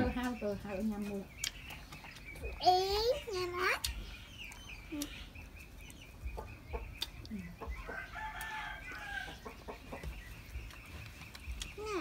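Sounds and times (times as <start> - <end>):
chicken clucking: 0.0 - 12.0
rooster crowing: 7.9 - 9.5.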